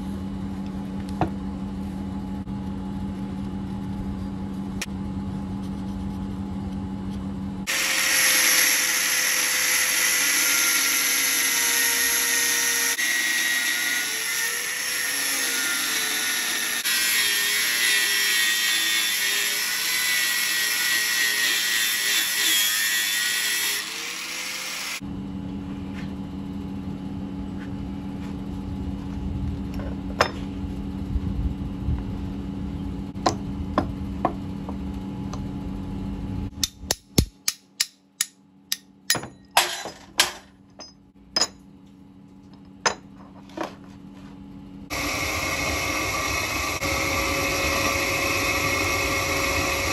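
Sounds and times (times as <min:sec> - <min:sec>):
angle grinder cutting steel: 0:07.7 - 0:25.0, 0:44.9 - 0:49.9
low hum: 0:25.0 - 0:39.6.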